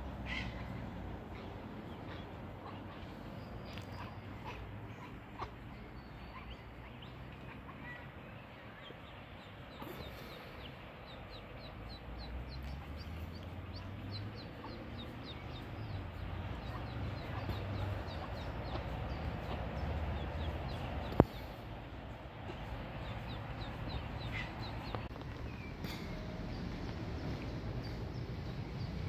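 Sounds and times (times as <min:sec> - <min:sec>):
ducklings peeping: 0:01.4 - 0:21.6, 0:22.5 - 0:25.1.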